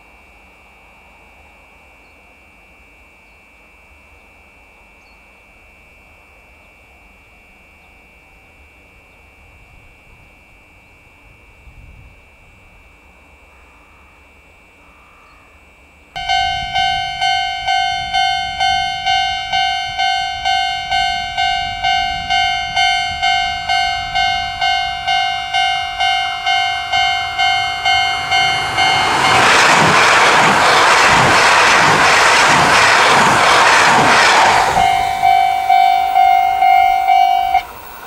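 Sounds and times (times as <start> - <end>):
level crossing bell ringing: 16.2 - 30.6, 33.4 - 37.7
train rushing past: 16.2 - 38.0
wheels beating on rail: 16.2 - 38.0.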